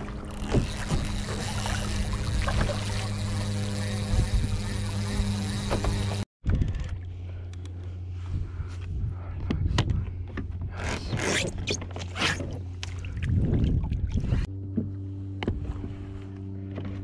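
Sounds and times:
paddle strokes splashing: 0.0s - 6.2s
steady low hum: 0.0s - 10.8s.

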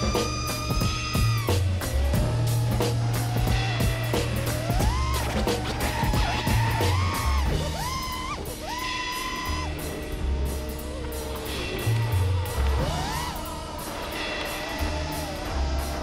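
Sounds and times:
drum beat: 0.0s - 8.8s
bass: 0.0s - 16.0s.

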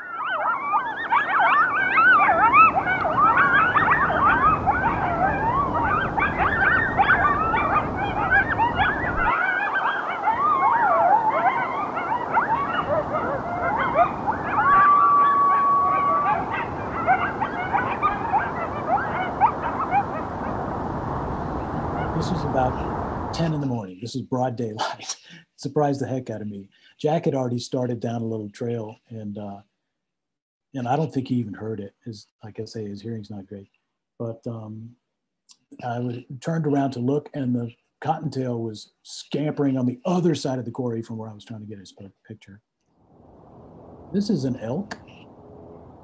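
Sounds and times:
long steady coyote howl: 0.0s - 23.4s
coyotes yipping and howling: 0.0s - 23.7s, 43.3s - 46.0s.

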